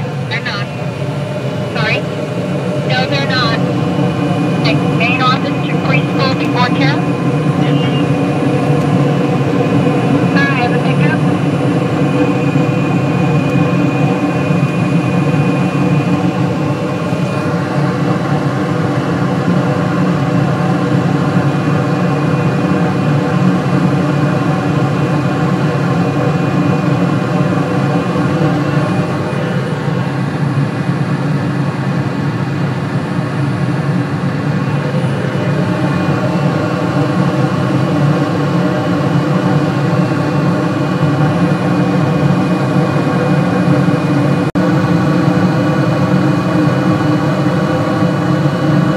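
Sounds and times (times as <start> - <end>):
hvac unit humming: 0.0 - 31.5.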